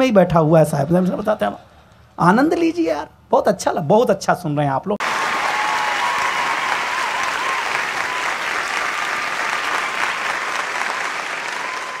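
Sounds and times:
crowd applauding: 5.0 - 12.0.

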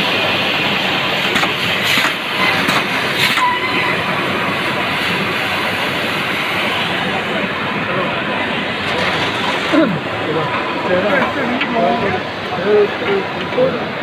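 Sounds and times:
machine rollers rattling: 8.7 - 14.0.

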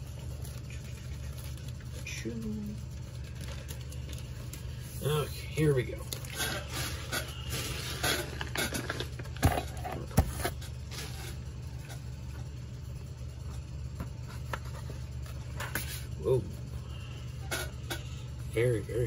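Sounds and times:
plastic packaging crinkling: 0.0 - 2.2, 2.9 - 4.8.

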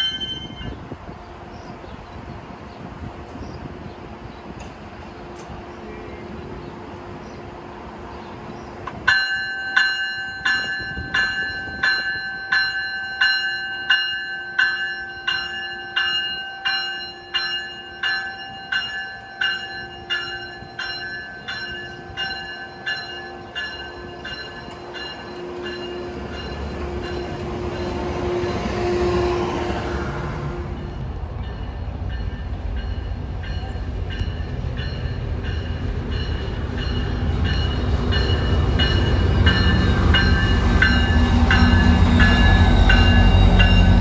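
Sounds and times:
locomotive bell ringing: 0.0 - 1.1, 9.0 - 28.8, 30.8 - 44.0
rolling train rumble: 0.0 - 44.0.

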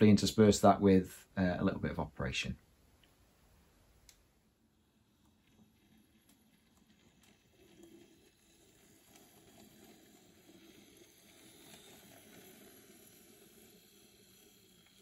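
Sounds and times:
faint model train hum: 4.4 - 15.0.

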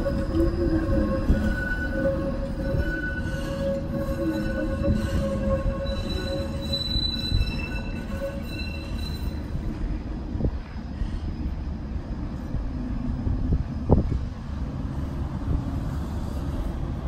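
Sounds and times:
tram wheels squealing on curve: 0.0 - 10.0, 14.8 - 17.0
low rumble of tram rolling: 0.0 - 17.0.

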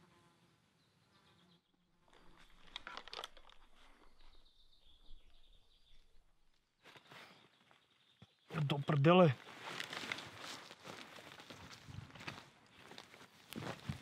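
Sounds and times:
fly buzzing: 0.0 - 0.5
clothing and gear rustling: 9.4 - 14.0.

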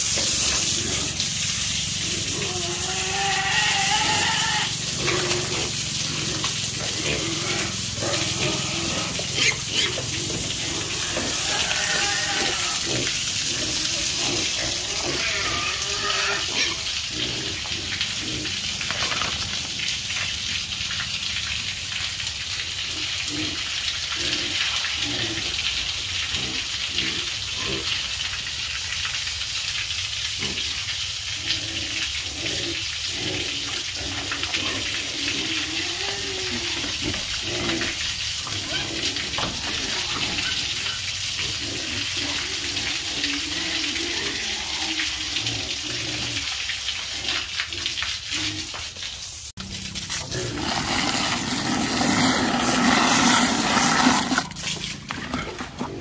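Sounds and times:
steady hissing noise: 0.0 - 2.8
pigs grunting and squealing: 0.2 - 19.4, 22.8 - 28.0, 30.4 - 30.8, 31.4 - 48.8, 49.6 - 56.0.

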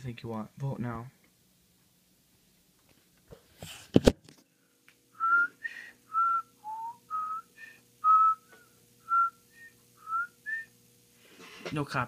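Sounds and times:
person whistling a tune: 5.2 - 10.7.

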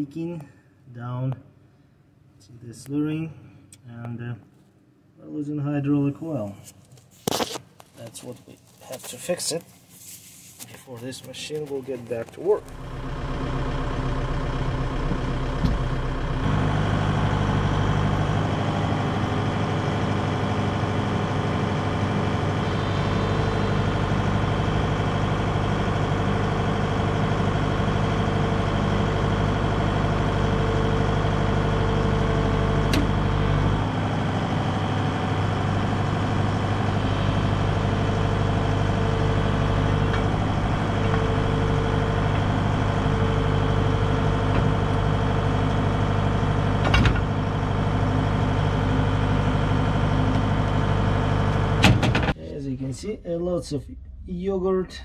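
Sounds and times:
excavator diesel engine running: 11.7 - 52.4
higher steady tone: 21.6 - 25.9, 33.4 - 44.4.

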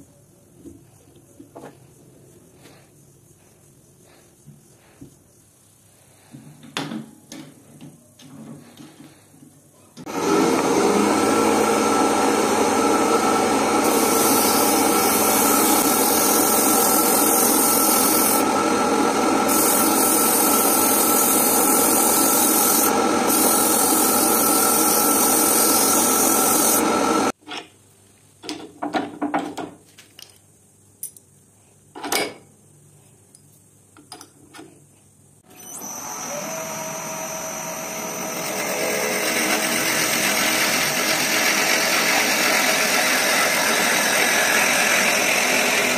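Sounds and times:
abrasive hissing against wood: 0.7 - 6.7, 13.8 - 18.5, 19.4 - 27.0
wood lathe running: 10.1 - 27.4, 35.6 - 45.9.

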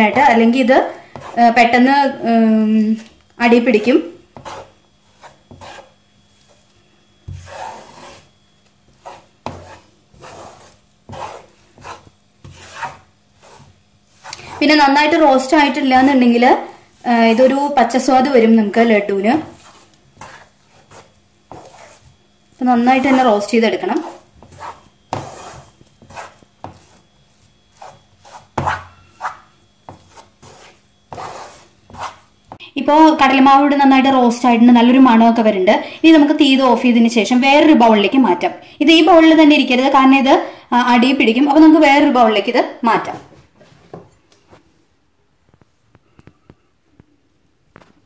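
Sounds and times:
spatula scraping in pan: 0.0 - 32.7.

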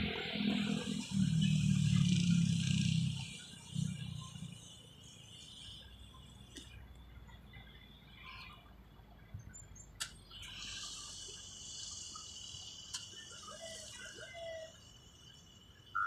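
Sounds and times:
high-pitched insect buzz: 0.0 - 6.8, 10.3 - 16.0.

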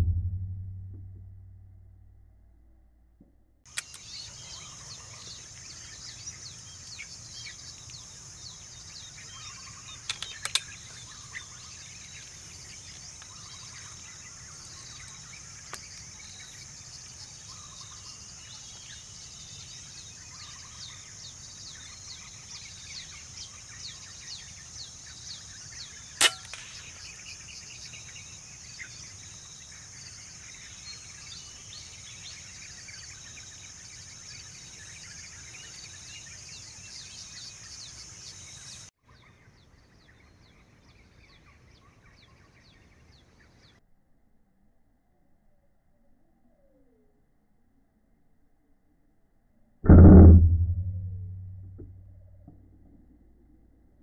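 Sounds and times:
faint clicks: 3.7 - 4.1
air rifle shot: 26.2 - 27.0, 49.9 - 51.6.

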